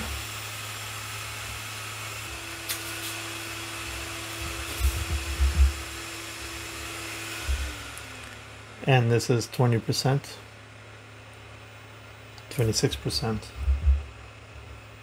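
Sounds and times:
blower whooshing: 0.0 - 9.2
faint hum: 3.6 - 15.0
low thumps: 13.5 - 14.2.

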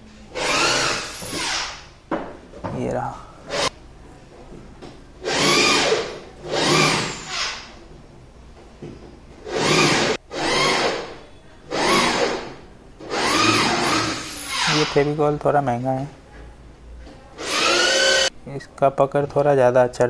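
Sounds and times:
power tool spinning up: 13.1 - 14.9, 17.4 - 18.3.

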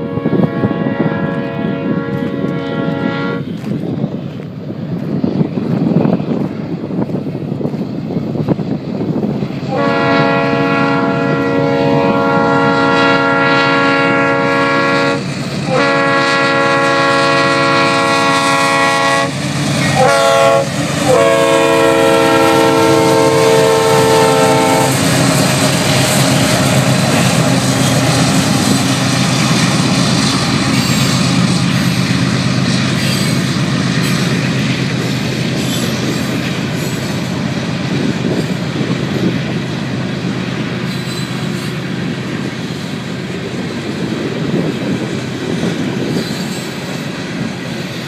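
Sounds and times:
locomotive air horn: 0.0 - 3.5, 9.7 - 29.6
locomotive engines: 0.0 - 48.0
train wheels on rails: 0.0 - 48.0.

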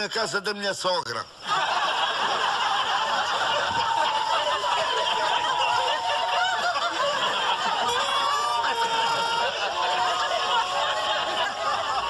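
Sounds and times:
audience laughing: 1.4 - 12.0.

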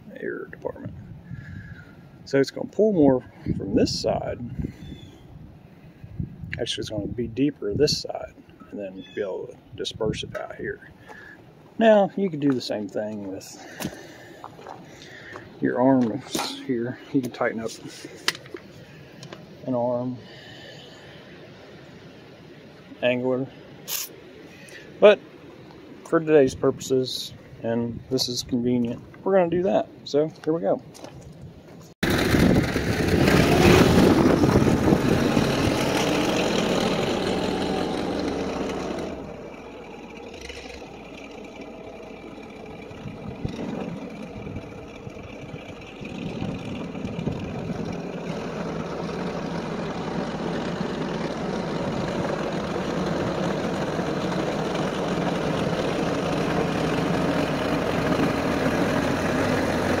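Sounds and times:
tractor diesel engine under load: 0.0 - 5.1, 10.0 - 21.7, 32.0 - 60.0.

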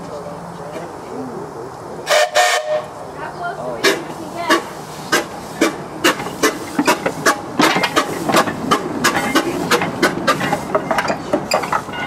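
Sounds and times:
air locomotive chuffing: 3.8 - 12.0.

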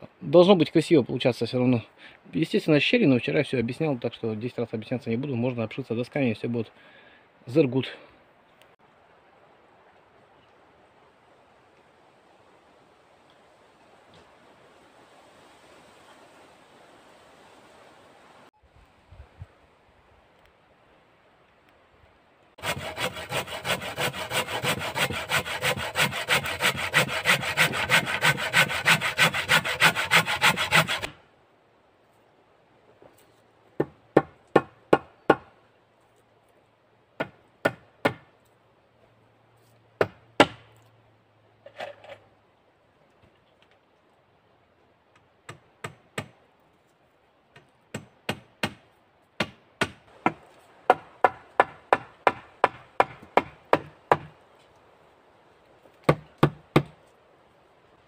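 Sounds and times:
hand saw cutting wood: 22.6 - 31.2
sharp blows on wood: 22.6 - 31.2.

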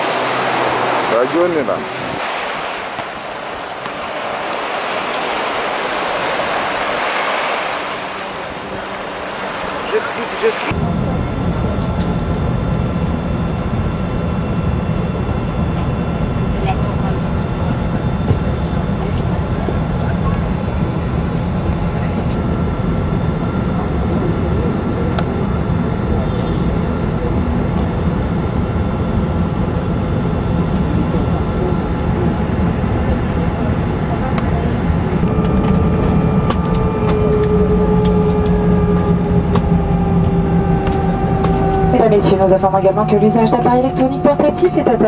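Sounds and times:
small waves washing on shore: 0.0 - 10.7
thin steady whine: 0.0 - 45.0
airliner cabin low rumble: 7.8 - 45.0.

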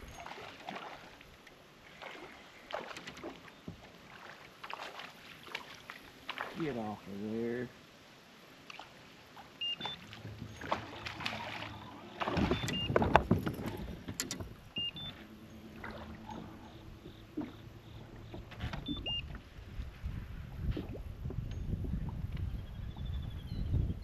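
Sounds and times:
water against hull: 0.0 - 7.7, 8.6 - 24.0
knocks against hull: 9.8 - 14.6
rising two-note electronic beep: 14.8 - 18.0.

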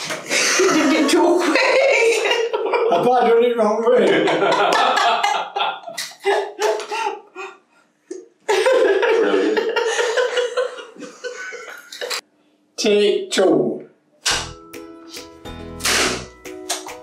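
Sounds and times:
man and woman laughing: 0.3 - 3.0, 4.0 - 7.6, 8.5 - 12.2.

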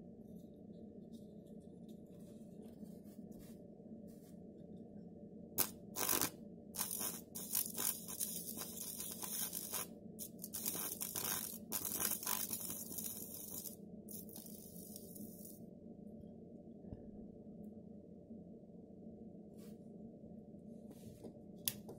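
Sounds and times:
low hum: 0.0 - 21.9
electric arc crackling: 5.6 - 15.6.

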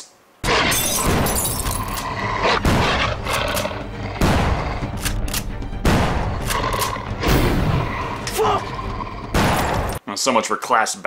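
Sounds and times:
tense film score: 0.4 - 10.0
gunshots: 2.5 - 3.6, 4.2 - 7.8, 9.3 - 10.0.

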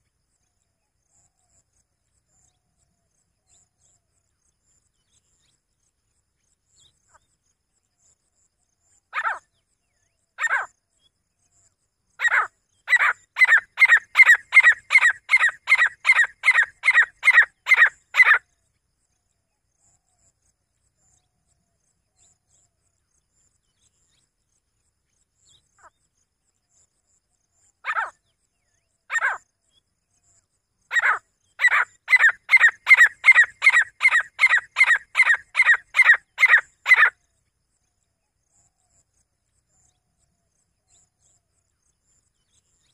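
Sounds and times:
francolin calling: 10.4 - 10.7, 12.2 - 18.4, 27.8 - 28.2, 29.1 - 29.4, 30.9 - 37.2.

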